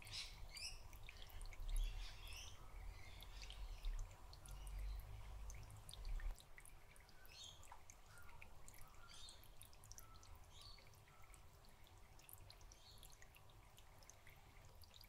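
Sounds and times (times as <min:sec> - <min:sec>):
faint dripping water: 0:00.0 - 0:15.0
faint high bird chirps: 0:07.0 - 0:11.5.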